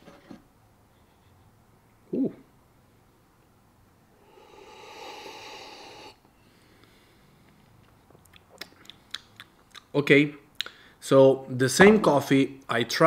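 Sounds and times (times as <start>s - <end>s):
person breathing out through nose: 4.2s - 7.5s.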